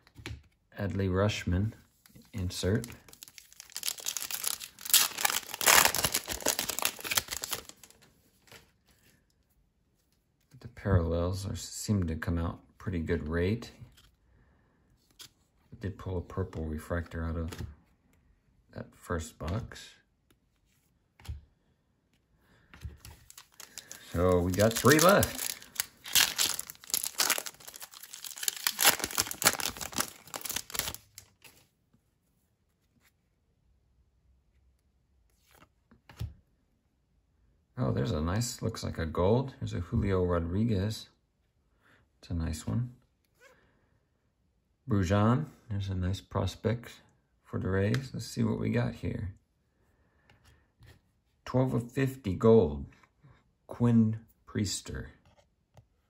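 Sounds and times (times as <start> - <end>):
foil wrapper tearing and crinkling: 2.9 - 7.9, 23.2 - 31.3.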